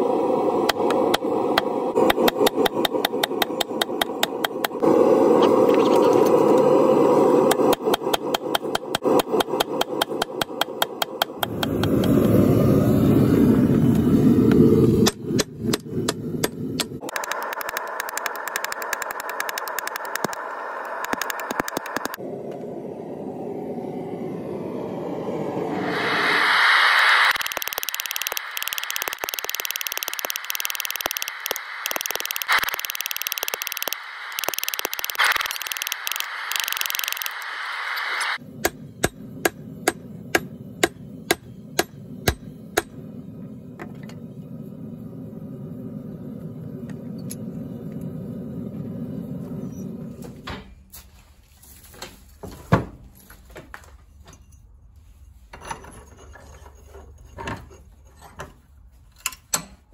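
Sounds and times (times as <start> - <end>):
steady low hum: 0.0 - 51.6
hammer striking hot steel: 0.6 - 4.8, 7.4 - 12.4, 14.8 - 20.4, 38.4 - 43.1
scattered clicks: 0.6 - 4.8, 14.5 - 22.2, 27.3 - 38.4
loud steady hiss: 25.8 - 42.9.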